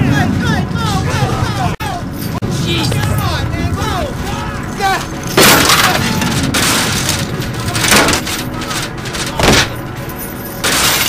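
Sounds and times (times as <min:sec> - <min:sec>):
steady low rumble: 0:00.0 - 0:11.0
heavy hits: 0:02.2 - 0:11.0
metal chain cracking onto wood: 0:04.9 - 0:11.0.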